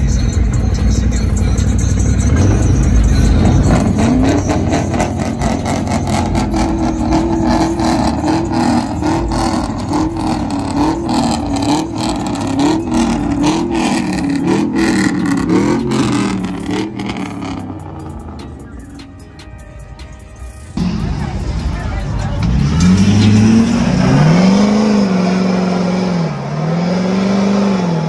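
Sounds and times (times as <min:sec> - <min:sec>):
truck engines revving: 0:00.0 - 0:28.0.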